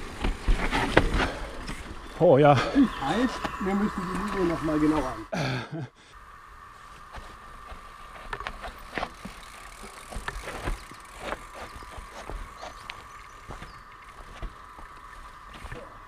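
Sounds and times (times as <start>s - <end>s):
bike knocks and rattles: 0.0s - 2.0s, 7.7s - 15.0s
steady high hum: 0.0s - 16.0s.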